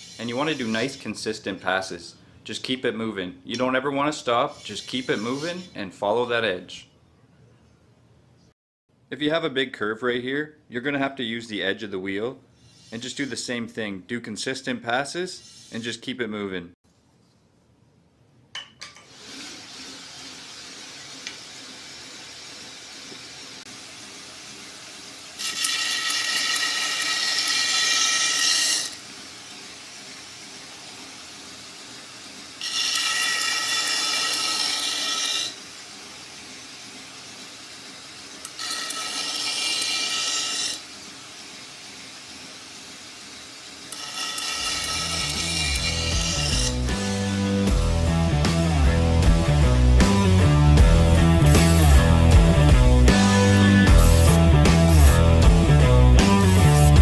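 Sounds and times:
high-pitched grinding hiss: 0.0 - 1.6, 4.2 - 6.2, 25.4 - 29.1, 32.6 - 35.6, 36.4 - 41.0, 42.2 - 47.4
belt grinder running: 25.3 - 29.2, 32.5 - 41.6, 43.3 - 47.8, 51.0 - 57.0.

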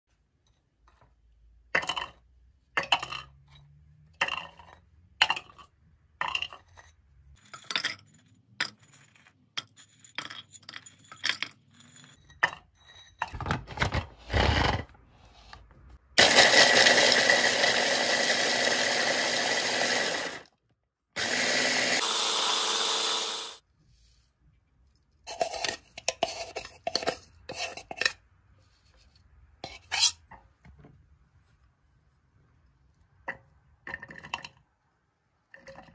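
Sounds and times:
metal spoon scraping and clinking: 5.4 - 13.4, 29.6 - 30.3
chopper motor grinding nuts: 16.2 - 20.5, 21.2 - 23.6.

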